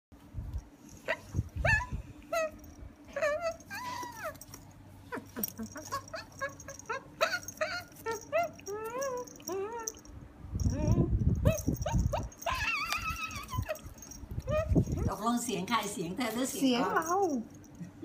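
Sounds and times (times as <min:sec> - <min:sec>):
puppy whining and yipping: 0:00.9 - 0:15.2.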